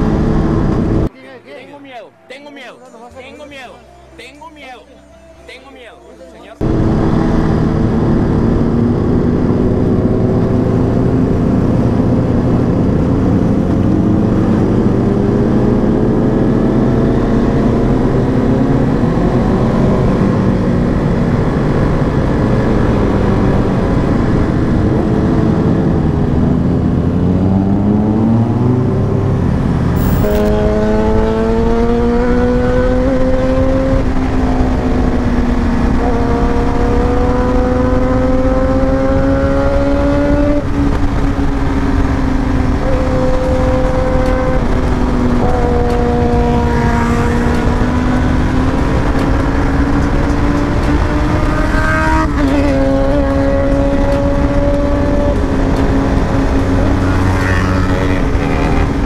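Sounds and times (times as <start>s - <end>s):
wind noise: 6.6s - 59.0s
motorcycle engine running: 30.0s - 59.0s.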